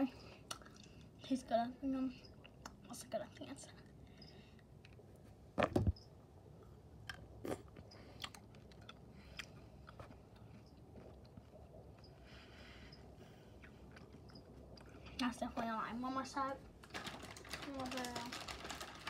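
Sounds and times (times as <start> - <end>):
chewing with wet mouth clicks: 0.4 - 1.2, 2.2 - 2.9, 7.0 - 12.2, 13.5 - 15.3.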